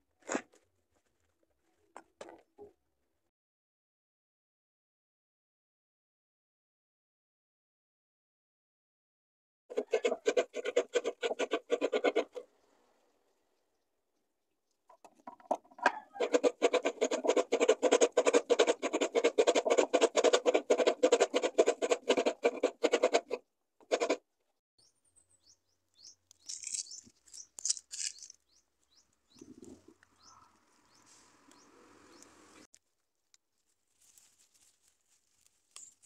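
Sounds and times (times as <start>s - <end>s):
coconut grater rasping: 9.7s - 12.4s, 16.1s - 24.2s.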